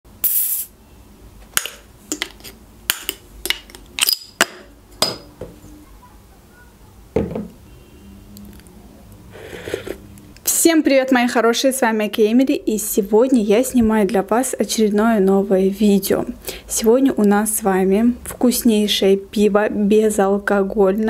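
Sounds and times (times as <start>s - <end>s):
bottle cap prying off: 1.6s - 5.3s
dull knock: 7.2s - 7.5s.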